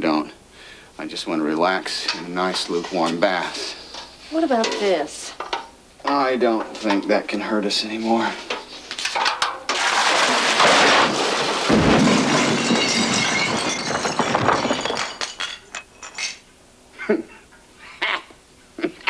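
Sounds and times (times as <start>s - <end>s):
crash of breaking debris: 9.7s - 15.7s.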